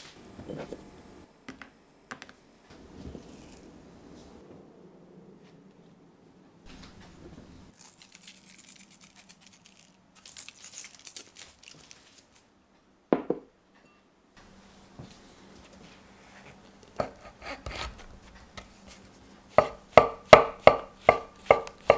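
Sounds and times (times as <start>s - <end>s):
salt flakes crackling: 7.7s - 12.4s
herb sprig rustling: 7.7s - 12.5s
bowl knocking on wooden table: 13.2s - 13.5s.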